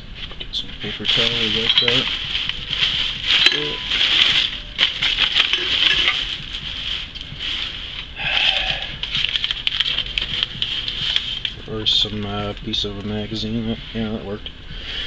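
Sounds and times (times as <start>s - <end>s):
objects clicking and tapping: 1.1s - 6.4s.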